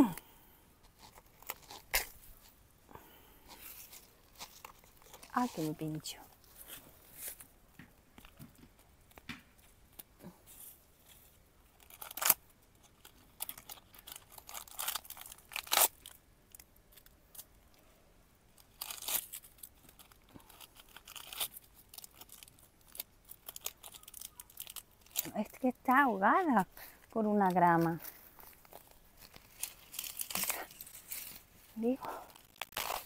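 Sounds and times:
grass and weeds rustling and tearing: 3.4s - 7.5s, 9.9s - 17.5s, 18.6s - 33.0s.

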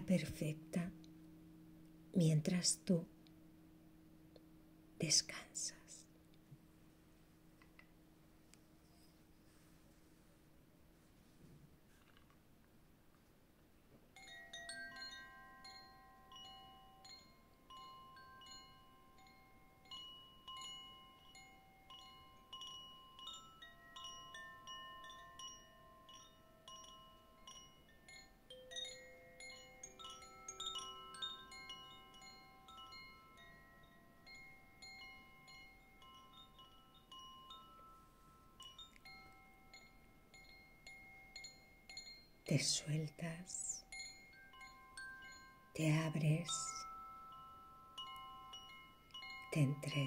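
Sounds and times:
wind chimes tinkling: 14.1s - 50.0s.

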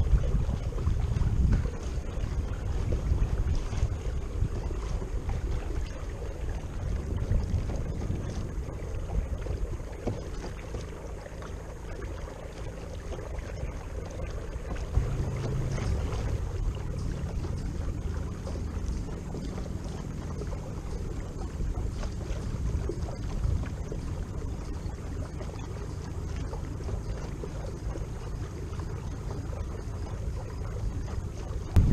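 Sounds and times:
wind buffeting microphone: 0.0s - 11.0s, 12.0s - 31.9s
water lapping at kayak hull: 0.0s - 31.9s
electric motor hum: 14.8s - 19.8s.

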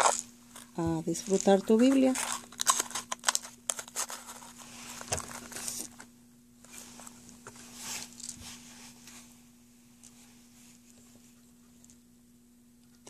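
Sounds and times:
paper rustling: 0.0s - 6.0s
faint steady hum: 0.0s - 13.0s.

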